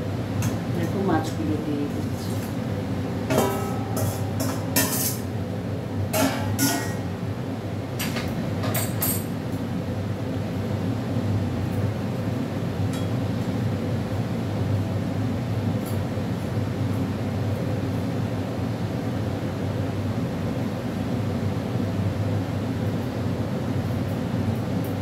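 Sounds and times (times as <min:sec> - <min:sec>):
steady low hum: 0:00.0 - 0:25.0
metal spatula clinking on steel: 0:06.2 - 0:07.0.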